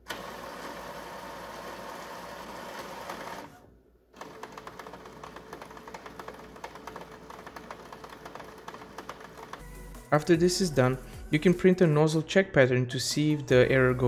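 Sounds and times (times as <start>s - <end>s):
printer mechanical whir: 0.0s - 9.6s.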